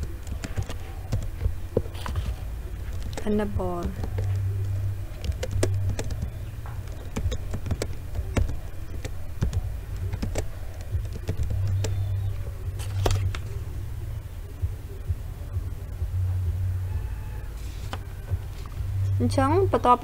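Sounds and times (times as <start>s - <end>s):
keyboard keys clicking: 0.0s - 13.6s
steady low hum: 0.0s - 20.0s.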